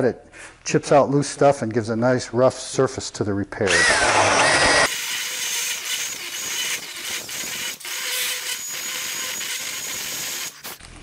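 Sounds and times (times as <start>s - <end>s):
rotary tool grinding wood: 3.7s - 10.8s.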